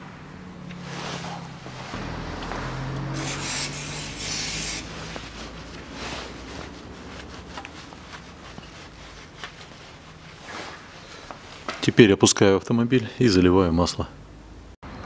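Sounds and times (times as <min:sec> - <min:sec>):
low steady hum: 0:00.0 - 0:11.6
gloved hand rubbing and scraping: 0:00.7 - 0:02.1, 0:02.9 - 0:11.9
short hissing scrapes: 0:03.2 - 0:05.3.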